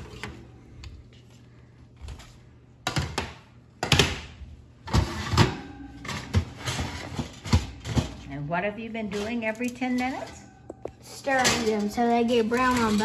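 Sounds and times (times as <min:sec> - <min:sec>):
metal baking sheets clanking: 0:04.9 - 0:13.0.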